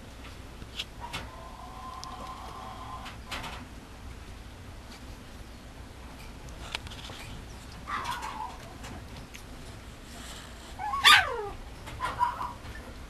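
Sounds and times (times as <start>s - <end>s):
puppy yelp: 7.9s - 8.6s, 10.8s - 12.7s
puppy whining yips: 10.8s - 12.6s.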